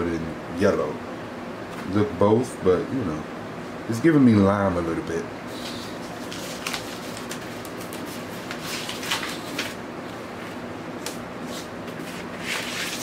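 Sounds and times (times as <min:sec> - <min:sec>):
fan hum: 0:00.0 - 0:13.0
paper sleeve rustling and scraping: 0:05.5 - 0:09.8, 0:11.4 - 0:13.0.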